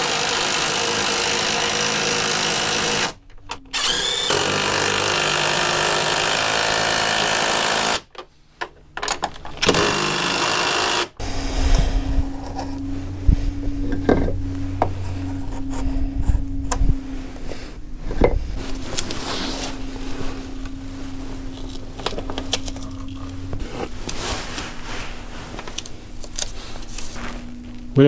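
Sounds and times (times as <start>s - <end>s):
steady low hum: 11.1s - 28.0s
wooden knocks and scrapes: 11.2s - 25.8s
deep rumble: 11.2s - 28.0s.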